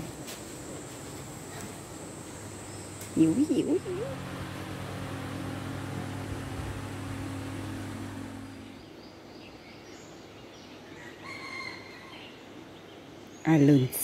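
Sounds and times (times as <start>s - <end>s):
steady low hum: 0.0s - 9.0s
open-air ambience: 0.0s - 14.0s.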